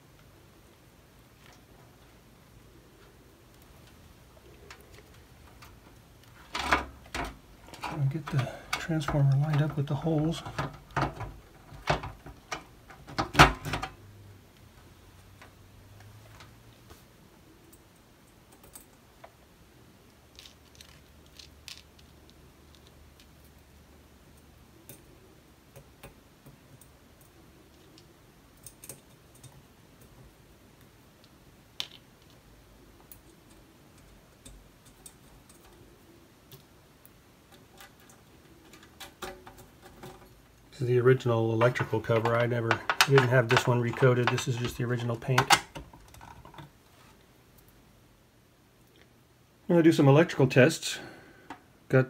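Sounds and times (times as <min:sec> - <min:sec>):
metal hardware clicks and knocks: 0:41.6 - 0:46.7.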